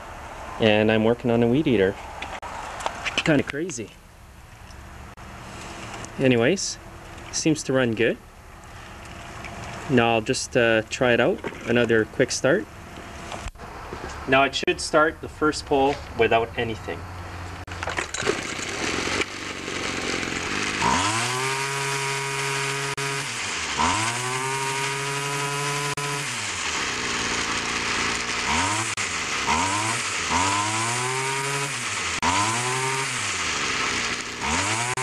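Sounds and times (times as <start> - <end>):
string trimmer engine revving: 5.2 - 7.4, 18.1 - 35.0.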